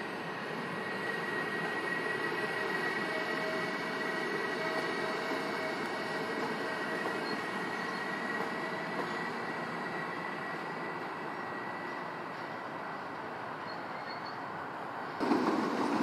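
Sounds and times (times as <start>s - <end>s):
locomotive high whine: 0.0s - 16.0s
train wheels rumbling on rail: 0.0s - 16.0s.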